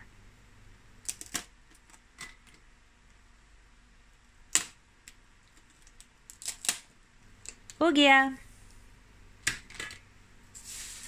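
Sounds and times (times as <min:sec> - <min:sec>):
crab shell cracking: 0:05.8 - 0:07.6.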